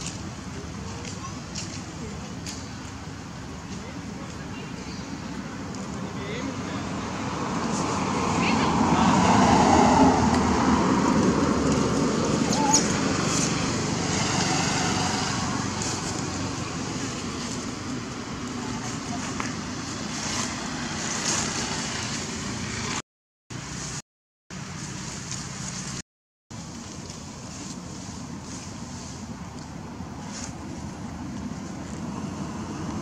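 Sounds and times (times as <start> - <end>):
indistinct voices outdoors: 0.0 - 23.0.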